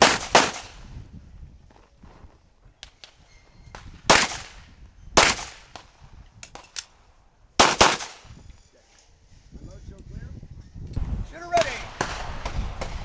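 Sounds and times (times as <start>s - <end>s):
handgun shots: 7.6s - 8.2s.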